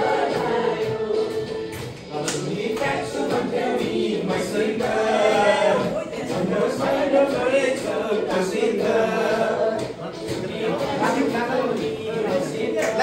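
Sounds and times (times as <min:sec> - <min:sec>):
group singing a song: 0:00.0 - 0:13.0
music accompaniment: 0:00.0 - 0:13.0.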